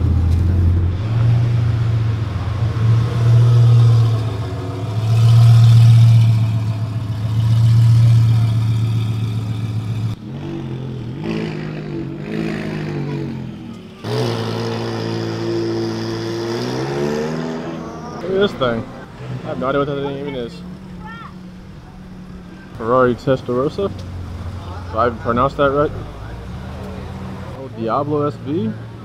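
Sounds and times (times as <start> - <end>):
sports car engine running: 0.0 - 11.2
second sports car engine: 0.0 - 29.0.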